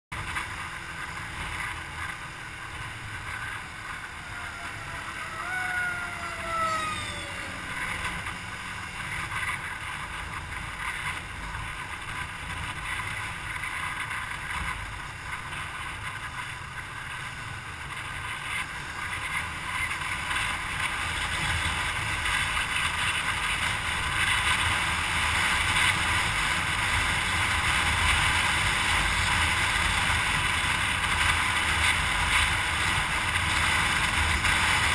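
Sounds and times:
vehicle wind and road noise: 0.1 - 34.9
brief falling whine: 3.9 - 8.6.

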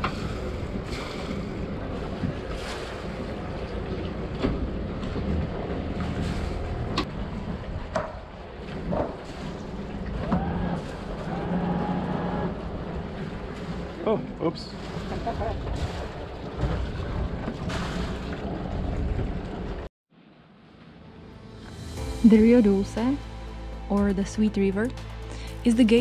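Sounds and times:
boat engine running slowly: 0.0 - 19.9.

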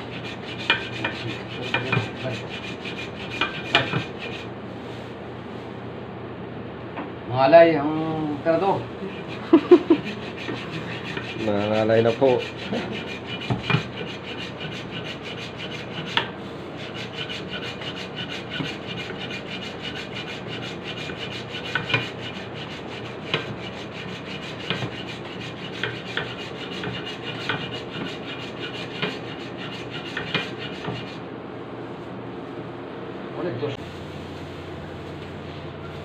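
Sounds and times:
hacksaw rasping through metal: 0.0 - 4.5, 9.1 - 31.2.

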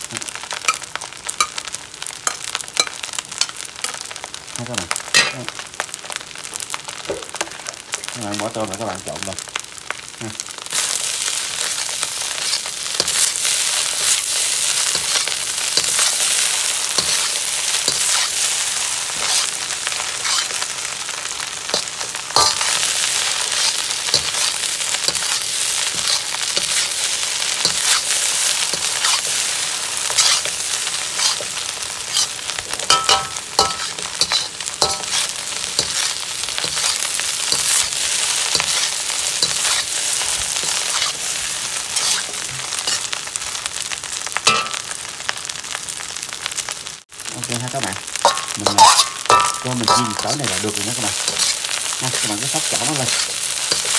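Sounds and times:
rice sizzling in a wok: 0.0 - 53.9
metal spatula scraping a wok: 10.8 - 20.8, 21.7 - 43.2, 44.5 - 44.8, 48.1 - 53.9.

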